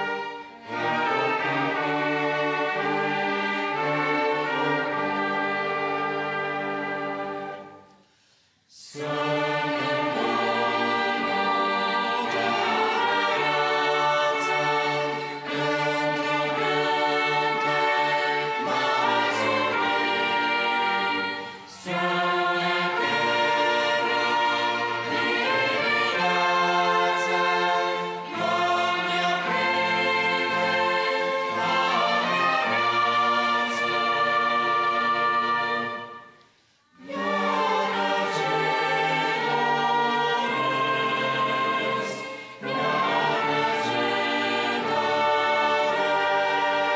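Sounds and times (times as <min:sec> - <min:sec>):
choir singing: 0:00.0 - 0:46.9
orchestra playing a slow hymn: 0:00.0 - 0:46.9.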